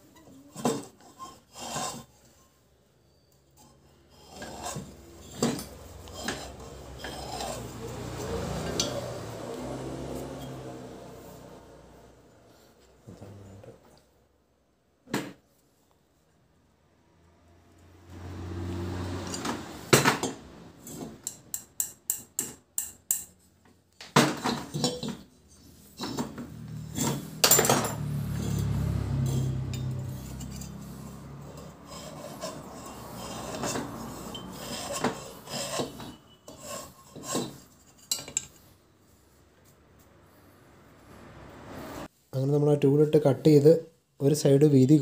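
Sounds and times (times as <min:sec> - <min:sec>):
cutter scraping metal: 0:00.1 - 0:02.5, 0:03.1 - 0:11.5, 0:24.7 - 0:38.7.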